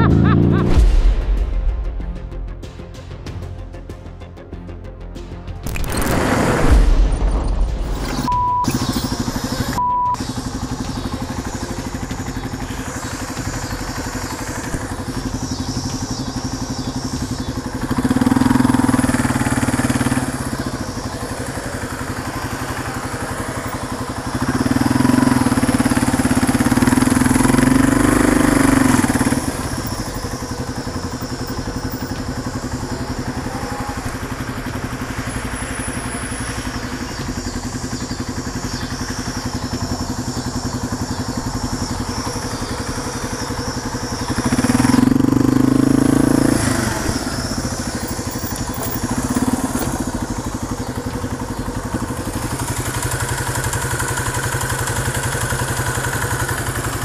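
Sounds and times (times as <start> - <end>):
motorcycle engine running: 0.0 - 1.3, 5.7 - 57.0.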